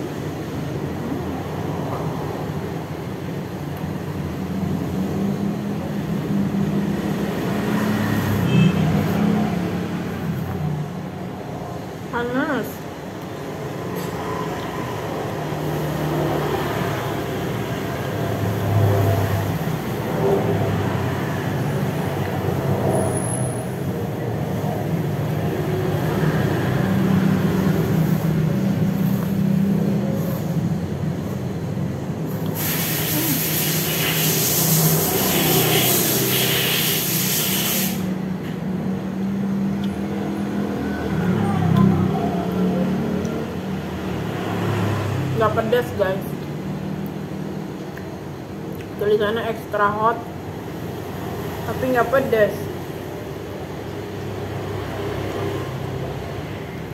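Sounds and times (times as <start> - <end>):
loud hiss: 32.4 - 38.2.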